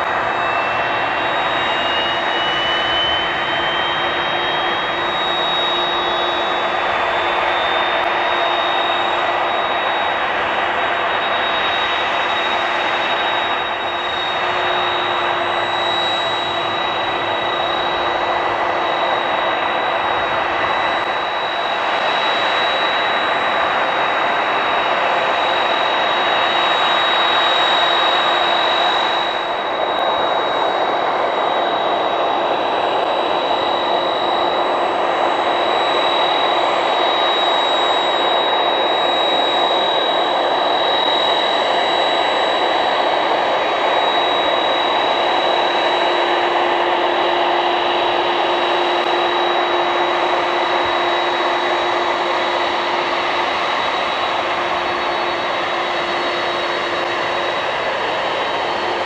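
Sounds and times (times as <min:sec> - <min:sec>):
high jet engine whine: 0:00.0 - 0:59.0
jet engine rumble: 0:00.0 - 0:59.0.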